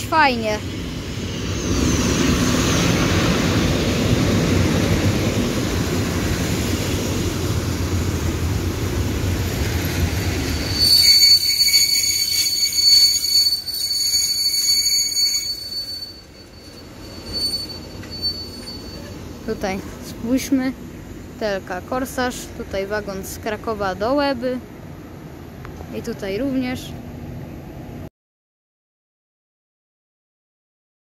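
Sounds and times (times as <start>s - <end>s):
train rumbling past: 0.0s - 28.1s
train wheels squealing: 0.5s - 3.9s, 9.4s - 19.6s.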